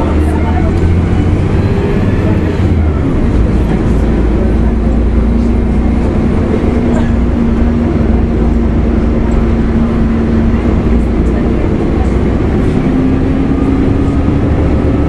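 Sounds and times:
bus diesel engine rumbling: 0:00.0 - 0:15.0.

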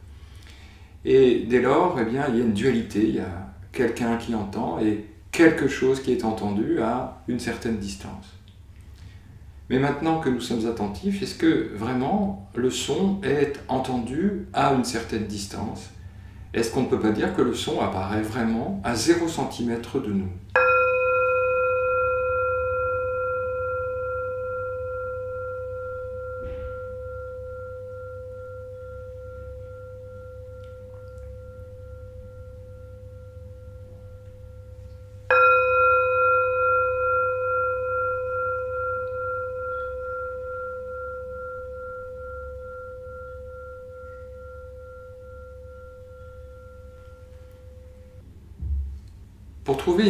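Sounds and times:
singing bowl ringing: 0:20.5 - 0:48.6.

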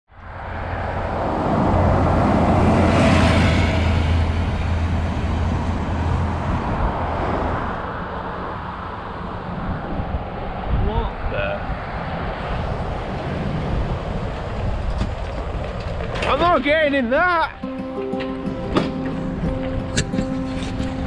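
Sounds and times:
road traffic: 0:00.1 - 0:21.0
vehicle passing close: 0:00.2 - 0:10.8.

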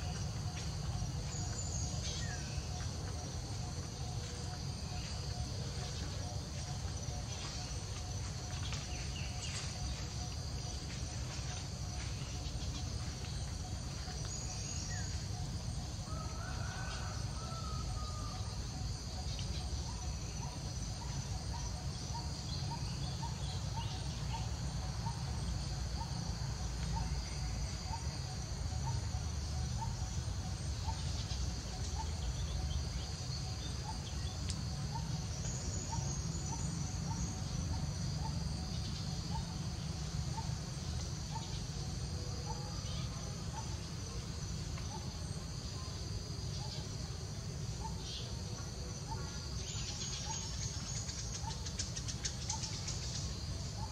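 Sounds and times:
insects droning: 0:00.0 - 0:53.9.

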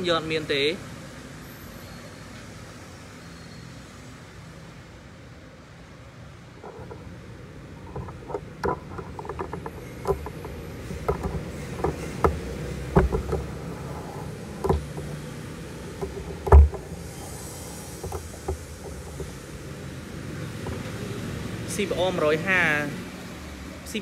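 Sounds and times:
sharp clicks and knocks: 0:06.6 - 0:21.9.

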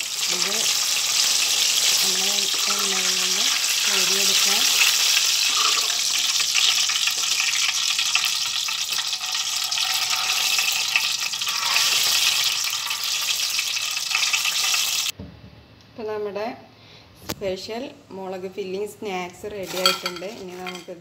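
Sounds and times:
chillies deep-frying in oil: 0:00.0 - 0:15.1.

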